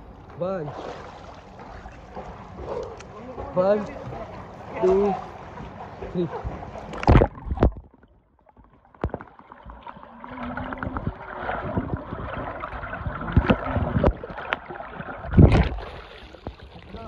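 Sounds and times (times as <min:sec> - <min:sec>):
loud water splash: 0:00.6 - 0:02.4, 0:10.4 - 0:17.0
underwater knocks: 0:05.6 - 0:16.9
muffled underwater gurgling: 0:09.9 - 0:17.0.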